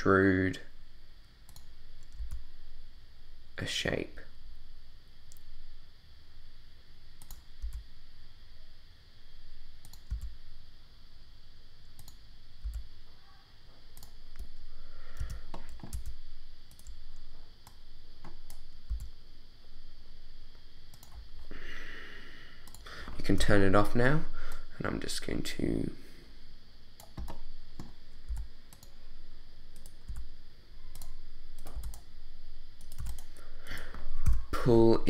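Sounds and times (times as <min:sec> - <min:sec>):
mouse and keyboard clicking: 0:32.8 - 0:33.3.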